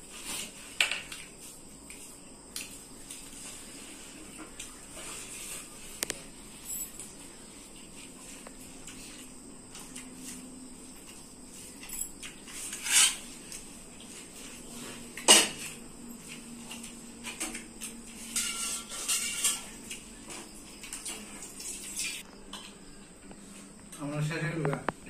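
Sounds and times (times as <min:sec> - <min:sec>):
metal plates and bowls clinking: 0:18.2 - 0:19.8.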